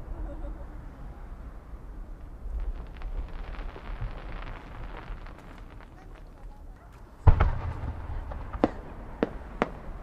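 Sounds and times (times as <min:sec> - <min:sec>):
firework sparks crackling: 0:02.2 - 0:10.0.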